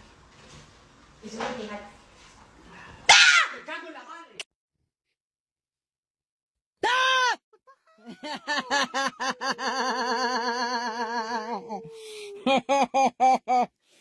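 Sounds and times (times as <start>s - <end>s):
woman screaming: 3.1s - 3.6s, 6.8s - 12.6s
woman laughing: 7.6s - 13.7s
breathy gasp: 11.8s - 12.4s.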